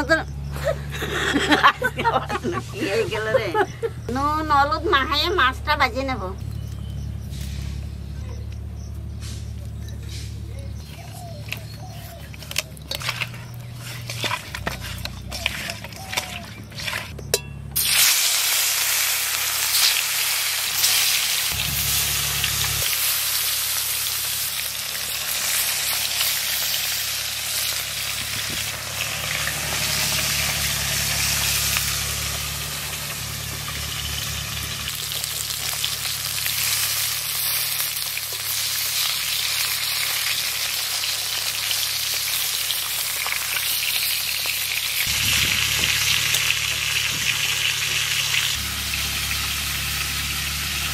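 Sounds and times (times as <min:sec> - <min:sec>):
fish frying in hot oil: 0:17.8 - 0:50.9.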